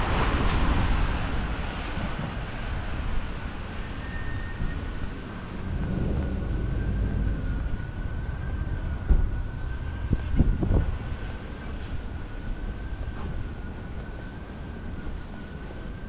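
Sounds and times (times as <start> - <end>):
steady high whine: 0.0 - 16.0
traffic rumble: 0.0 - 16.0.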